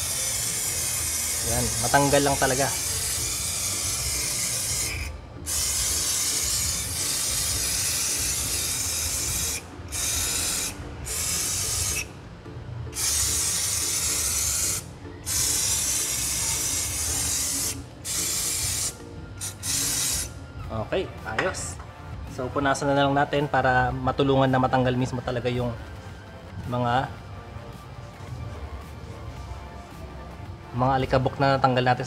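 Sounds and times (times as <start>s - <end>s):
aerosol spray hissing: 0.0s - 12.1s, 12.9s - 20.4s.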